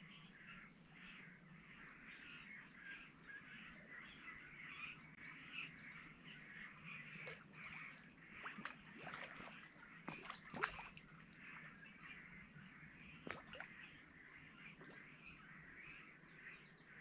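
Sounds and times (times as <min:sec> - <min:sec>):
distant birds chirping: 0:00.0 - 0:17.0.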